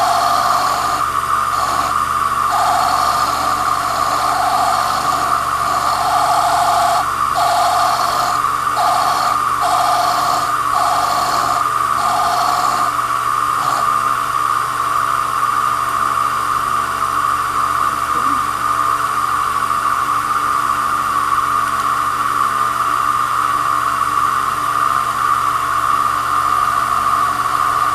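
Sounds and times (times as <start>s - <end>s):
lathe whining: 0.0s - 14.8s.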